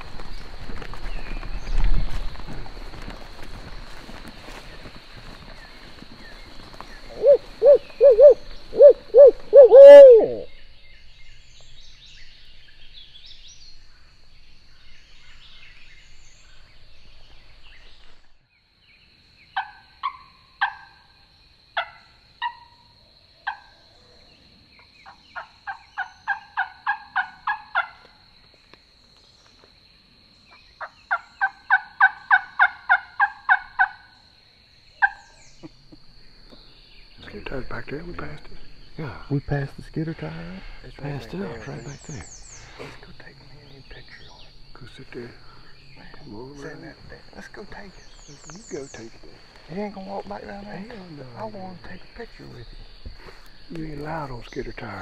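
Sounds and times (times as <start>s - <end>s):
owl-like hoots: 7.1s - 10.5s
turkey yelps: 7.1s - 10.5s, 25.4s - 28.0s
turkey clucks: 23.4s - 23.7s, 25.0s - 28.1s, 30.8s - 34.1s, 35.0s - 35.9s.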